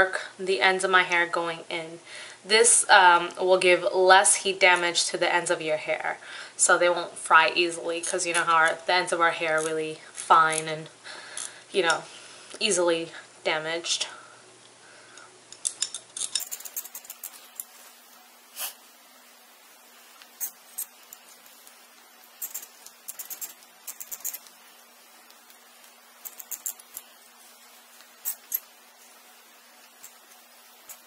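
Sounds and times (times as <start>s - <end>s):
faint steady hum: 0.0s - 31.0s
curling iron clicking and rustling: 8.0s - 8.8s, 20.2s - 31.0s.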